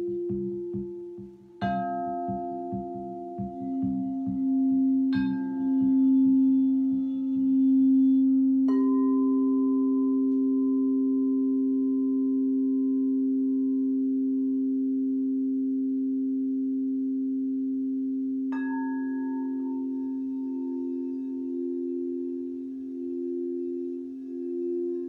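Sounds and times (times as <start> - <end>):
mallet striking bowl: 0.0 - 11.3, 18.5 - 25.0
crystal singing bowls ringing: 0.0 - 25.0.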